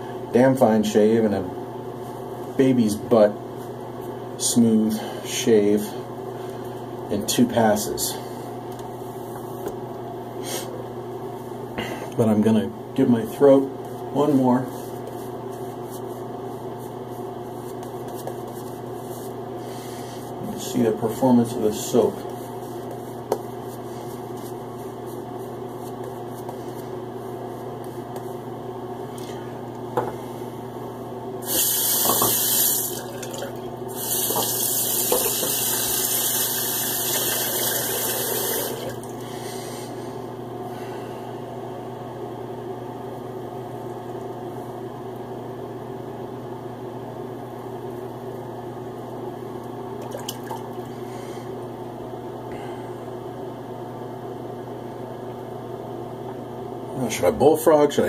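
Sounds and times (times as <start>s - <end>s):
steady low hum: 0.0s - 58.0s
tap water running into sink: 31.9s - 39.0s.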